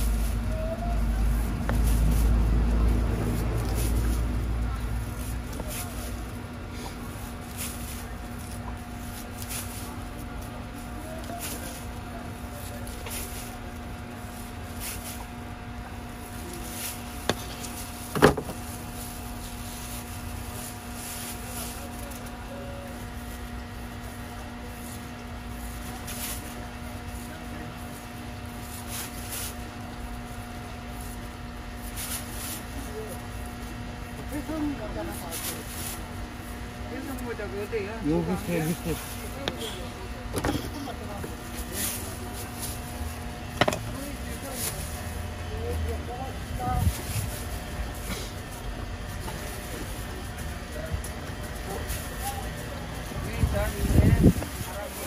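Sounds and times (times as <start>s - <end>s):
steady background hum: 0.0s - 55.0s.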